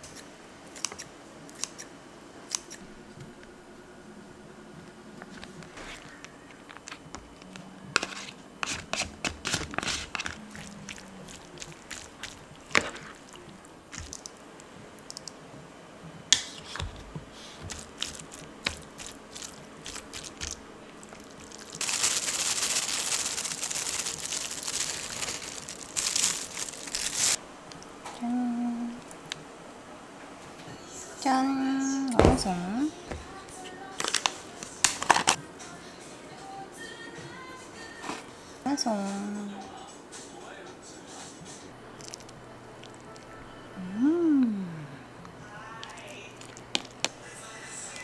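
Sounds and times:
plastic bag crinkling: 5.9 - 14.4, 17.7 - 27.4, 33.9 - 35.4, 45.9 - 47.1.

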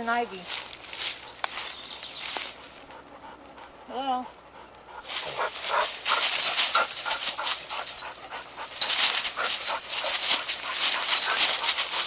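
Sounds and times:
dog panting: 2.5 - 12.0.

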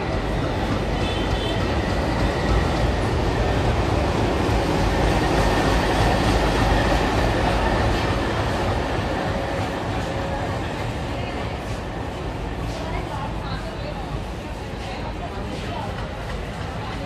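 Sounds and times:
diesel locomotive engine rumbling: 0.0 - 17.0
train coaches rolling: 0.0 - 17.0.

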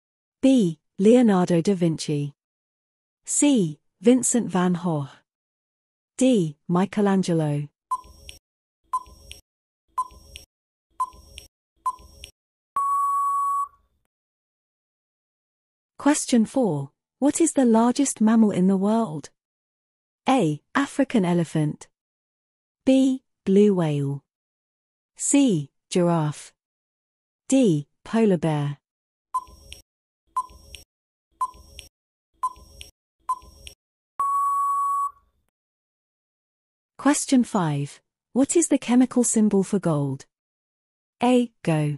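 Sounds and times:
short electronic beeps: 10.0 - 10.3, 11.9 - 12.2, 12.8 - 13.8, 29.4 - 29.6, 31.4 - 31.7, 32.4 - 33.5, 34.2 - 35.2
long steady beep: 12.8 - 13.8, 34.2 - 35.2
short beeps: 12.8 - 13.8, 34.2 - 35.2.

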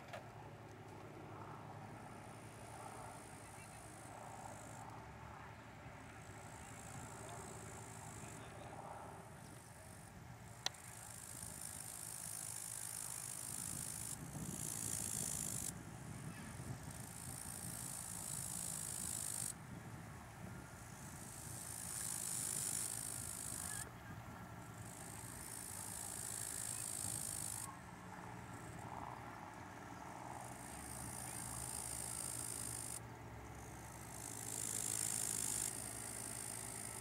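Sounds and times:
wind hissing on microphone: 8.2 - 24.2.

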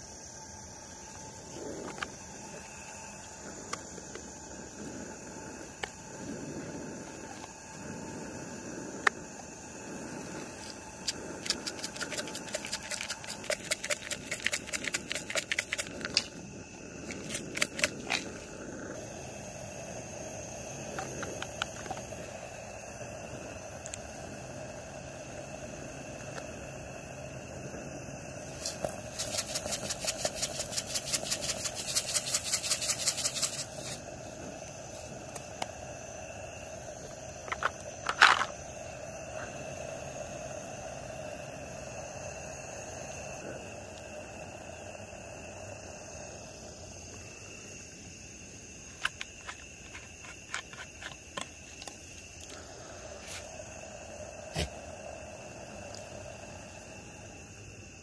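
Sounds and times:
insects buzzing: 0.0 - 58.0
plastic shaker rattling: 11.4 - 16.2, 28.6 - 34.0.

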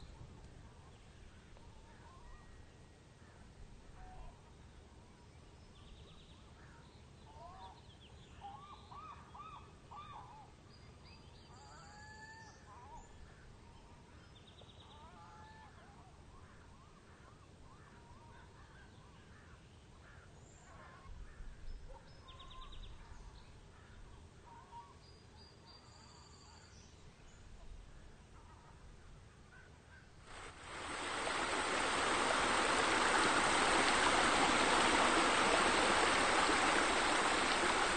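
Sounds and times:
low background ambience: 30.2 - 37.9
bird calls: 30.3 - 37.9.

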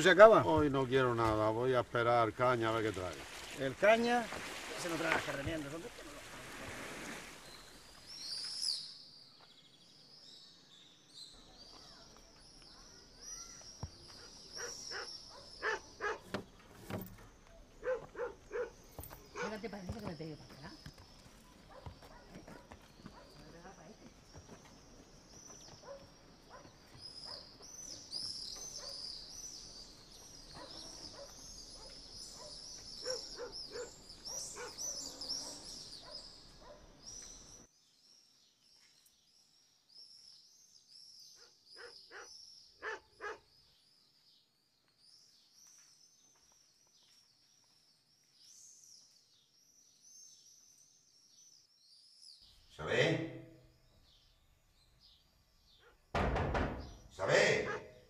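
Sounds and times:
quiet village ambience: 0.0 - 58.0
donkey hooves clopping on street: 17.0 - 28.7
sharp knocks: 56.1 - 57.1.

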